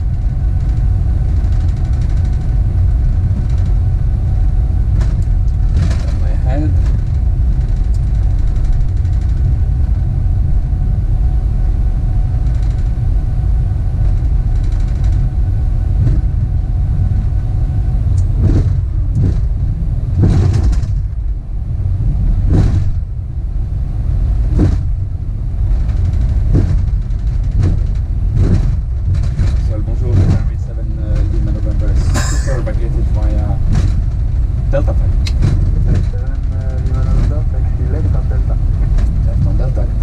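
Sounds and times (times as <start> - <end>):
aircraft rolling on runway rumble: 0.0 - 40.0
faint steady whine: 0.0 - 40.0
thumps: 16.0 - 16.5, 18.2 - 21.3, 22.4 - 23.0, 25.7 - 37.4.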